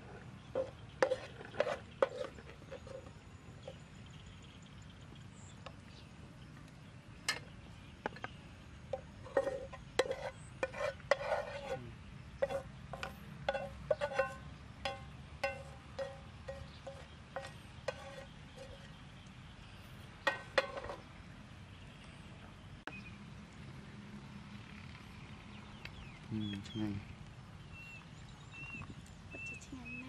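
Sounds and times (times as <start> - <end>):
metal spatula scraping frying pan: 0.1 - 3.8, 8.9 - 11.8, 12.4 - 18.9, 20.2 - 21.0.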